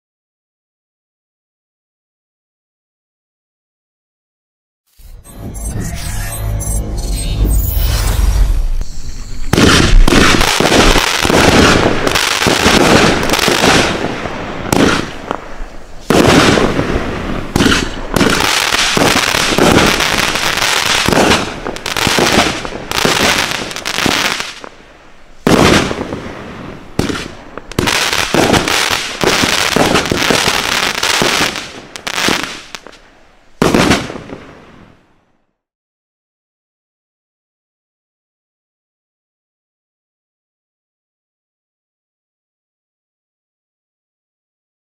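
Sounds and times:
firework shots launching and bursting: 7.8 - 24.8, 25.4 - 33.0, 33.6 - 34.8.

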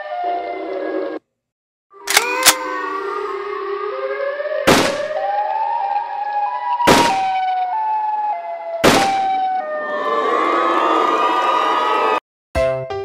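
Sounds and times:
siren wail: 0.0 - 1.2, 1.9 - 12.2
sharp shot-like blasts: 4.6 - 5.2, 6.8 - 7.4, 8.8 - 9.3.

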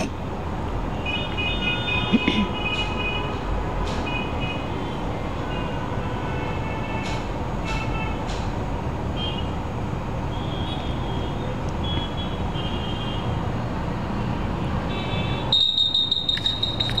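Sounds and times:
traffic engines rumbling: 0.0 - 17.0
shrill high tone: 15.6 - 17.0.

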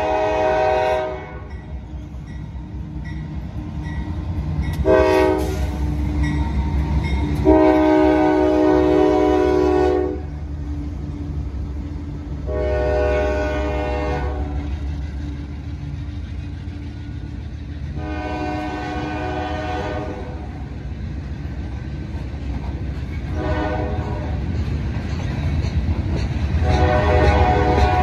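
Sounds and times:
freight train horn blasts: 0.0 - 1.8, 4.7 - 6.4, 7.0 - 10.5, 12.4 - 14.8, 17.9 - 20.7, 23.2 - 24.5, 26.5 - 28.0
train rumbling past: 0.0 - 28.0.

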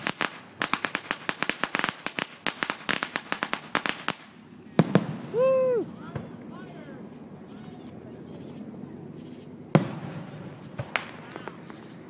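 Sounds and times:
fireworks crackling pops: 0.0 - 6.8, 9.7 - 12.0
firework bangs: 0.0 - 7.1, 9.6 - 12.0
firework whistle: 9.2 - 12.0.

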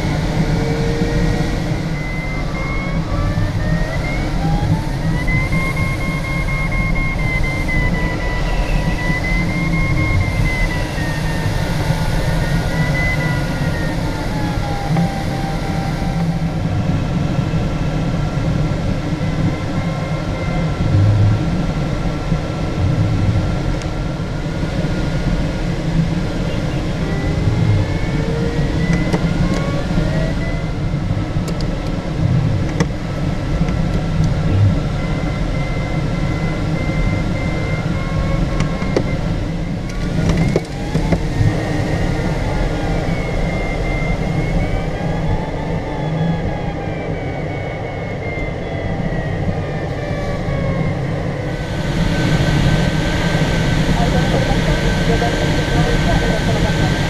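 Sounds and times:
airflow rush in cockpit: 0.0 - 57.0
variometer tone sliding in pitch: 0.0 - 57.0.

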